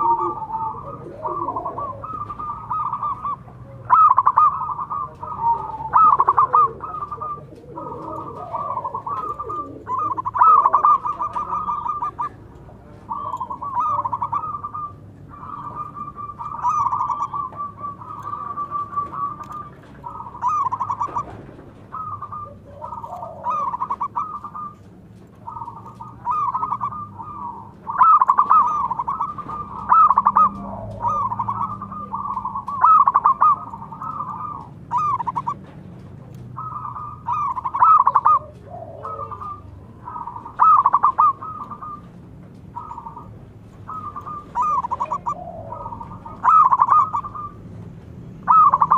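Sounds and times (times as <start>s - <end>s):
doves cooing: 0.0s - 48.9s.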